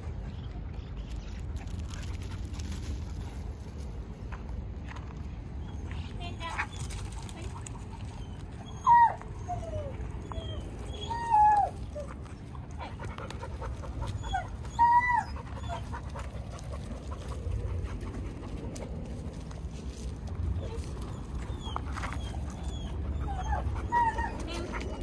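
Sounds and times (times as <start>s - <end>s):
dog whining: 8.0s - 12.2s, 13.7s - 16.3s, 20.6s - 25.0s.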